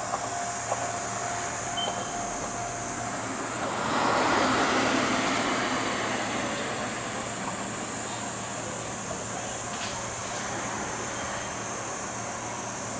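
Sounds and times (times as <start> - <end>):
high steady whine: 0.0 - 4.0.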